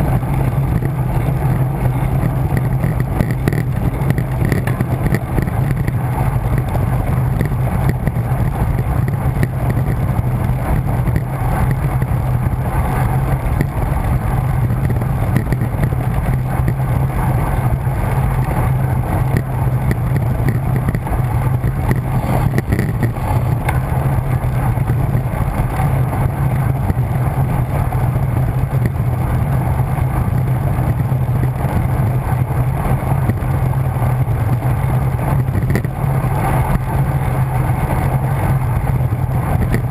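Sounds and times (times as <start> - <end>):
constant low drone: 0.0 - 39.9
wind buffeting microphone: 0.0 - 39.9.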